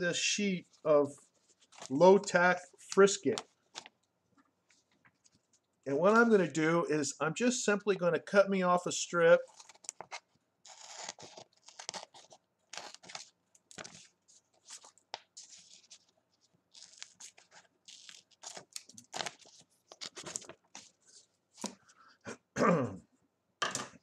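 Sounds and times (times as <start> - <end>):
plastic sheet crinkling: 9.4 - 21.8.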